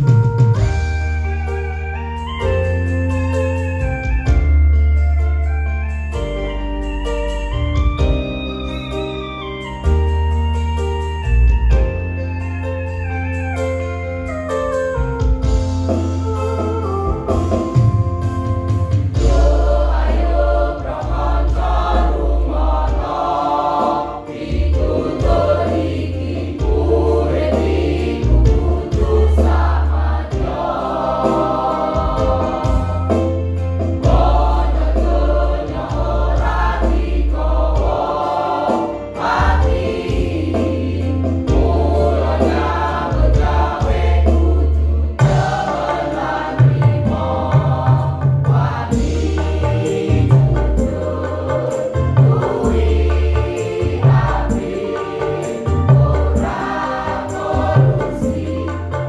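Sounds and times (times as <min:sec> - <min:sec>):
electronic keyboard with heavy bass: 0:00.0 - 0:59.0
mixed choir singing: 0:19.0 - 0:59.0.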